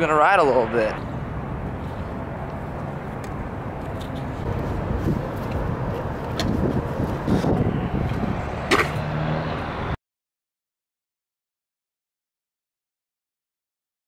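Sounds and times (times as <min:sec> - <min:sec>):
scooter wheels rolling on concrete: 0:01.6 - 0:09.4.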